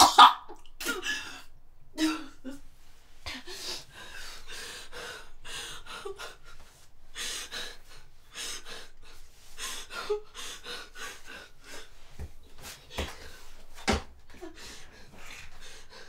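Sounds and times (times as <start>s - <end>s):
woman gasping and breathing hard: 14.4s - 16.0s.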